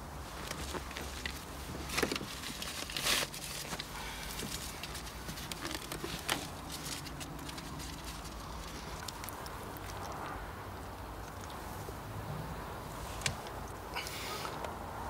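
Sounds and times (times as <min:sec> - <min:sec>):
paper bag rustling and crinkling: 0:00.0 - 0:09.4.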